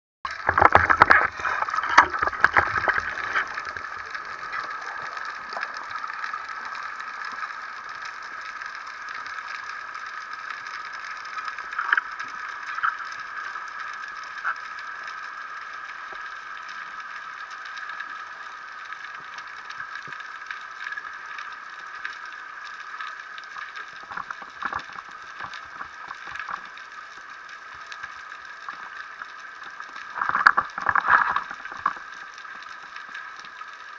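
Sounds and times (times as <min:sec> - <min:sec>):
underwater clicks and knocks: 0:00.3 - 0:07.4, 0:11.4 - 0:13.1, 0:24.0 - 0:26.8, 0:29.9 - 0:32.6
muffled underwater hiss: 0:00.3 - 0:33.9.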